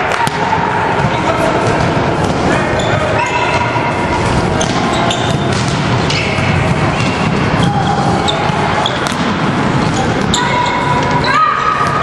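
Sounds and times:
volleyball being hit: 0.0 - 2.4, 4.6 - 7.8, 8.5 - 9.5
sneakers squeaking on floor: 1.0 - 3.8, 4.4 - 12.0.

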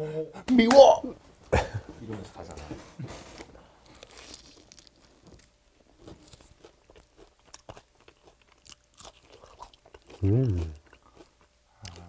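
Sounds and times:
person chewing fried chicken: 3.8 - 12.0.

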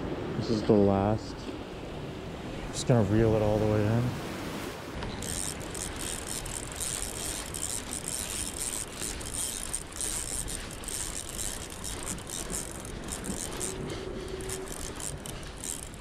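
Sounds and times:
fishing reel ratcheting: 5.0 - 16.0.

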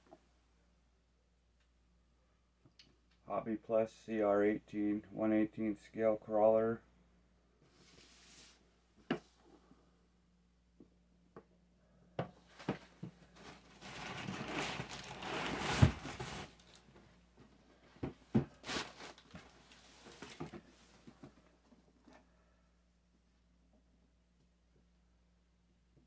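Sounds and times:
rustling inside cardboard carton: 12.4 - 16.8, 18.1 - 21.2
box thump: 15.6 - 16.4.

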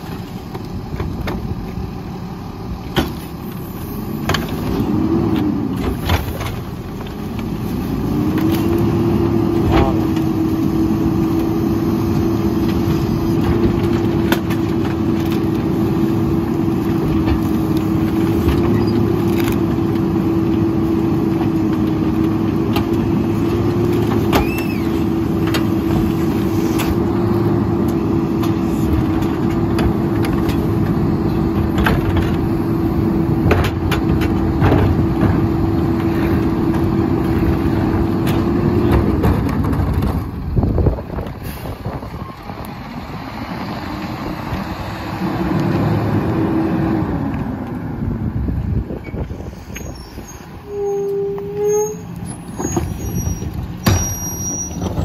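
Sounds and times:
garbage truck whine: 0.0 - 55.0
carts knocking and banging: 4.1 - 11.5, 12.5 - 41.4, 52.1 - 55.0
brief squeal: 24.4 - 25.0, 49.0 - 55.0.

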